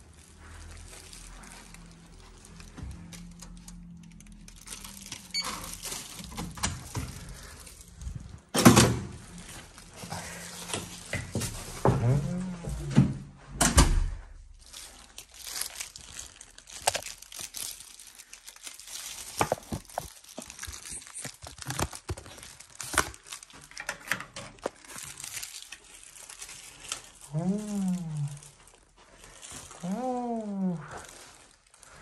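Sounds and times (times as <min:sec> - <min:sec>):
crinkling and rustling: 0:00.0 - 0:32.0
clicks and crackles: 0:00.9 - 0:08.5, 0:14.7 - 0:28.8.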